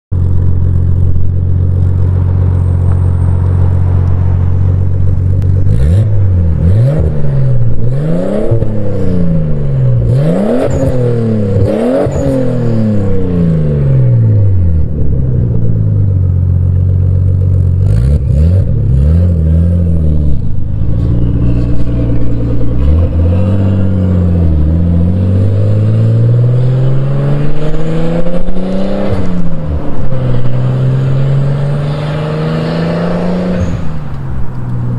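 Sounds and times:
car engine idling and revving: 0.1 - 34.9
car accelerating through gears: 17.9 - 34.0.

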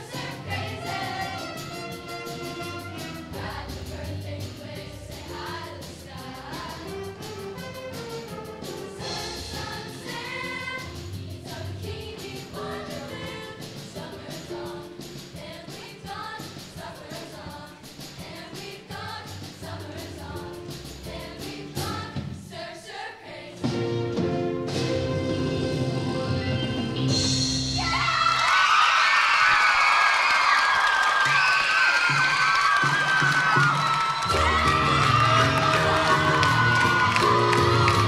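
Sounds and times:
choir singing: 0.0 - 7.7, 8.9 - 23.8, 34.2 - 38.0.

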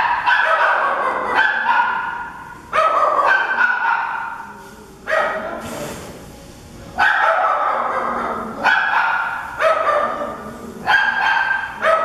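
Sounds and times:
dogs barking in echoing room: 0.0 - 5.8, 7.0 - 12.0.

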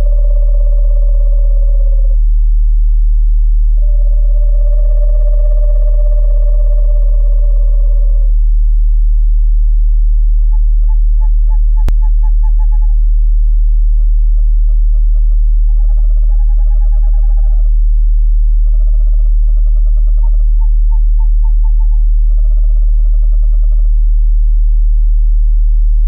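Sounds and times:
owls hooting: 0.0 - 2.2, 3.7 - 8.4, 10.4 - 13.1, 13.9 - 17.8, 18.5 - 24.0
steady deep tone: 0.0 - 26.0.

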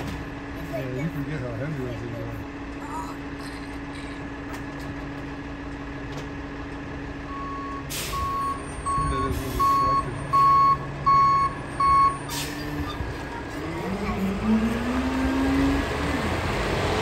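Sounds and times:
garbage truck idling: 0.0 - 14.5
backup alarm beeping: 7.3 - 12.3
air brake hisses: 7.9 - 8.4, 12.2 - 12.8.

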